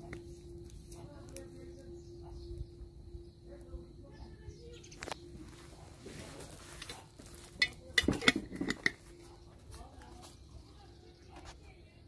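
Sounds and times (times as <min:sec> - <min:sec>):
dishes and cutlery clinking: 0:06.8 - 0:09.0.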